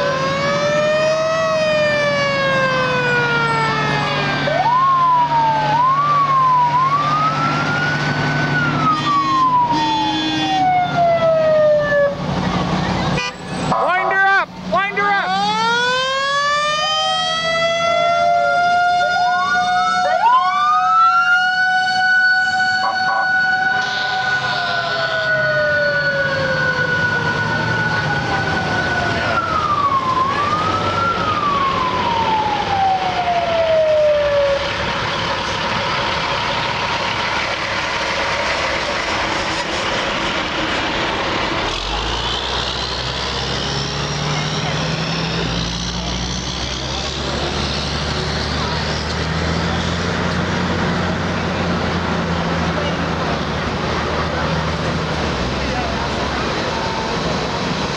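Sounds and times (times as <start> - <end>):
mechanical fire siren wailing: 0.0 - 12.5, 15.2 - 35.0
trucks passing: 0.0 - 57.9.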